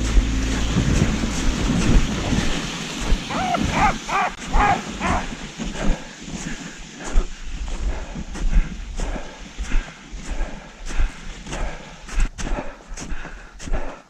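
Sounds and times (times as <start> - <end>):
wind rumble on microphone: 0.0 - 13.9
crunching steps in snow: 0.0 - 14.0
sled dogs yelping: 3.3 - 5.3.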